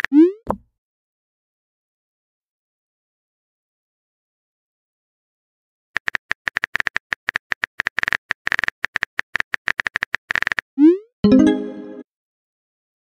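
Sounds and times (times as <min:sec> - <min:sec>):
brief tone with overtones: 0:11.2 - 0:12.0.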